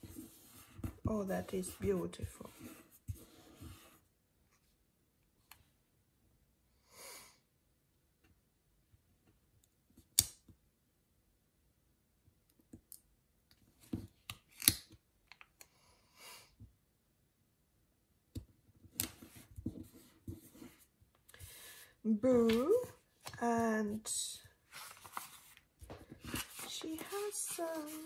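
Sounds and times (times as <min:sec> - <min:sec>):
paper rustling: 0:22.4 - 0:28.0.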